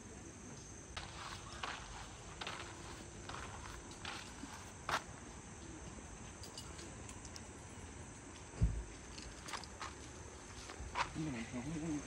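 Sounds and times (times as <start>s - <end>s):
insect chirping: 0.0s - 5.1s
camping gear clicks and knocks: 9.0s - 10.0s.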